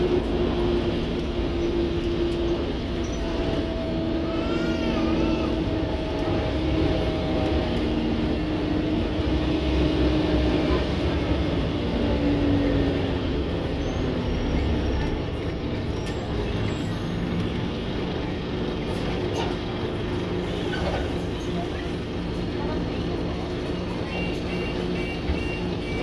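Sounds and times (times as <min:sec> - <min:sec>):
bus engine drone: 0:00.0 - 0:26.0
road rumble: 0:00.0 - 0:26.0.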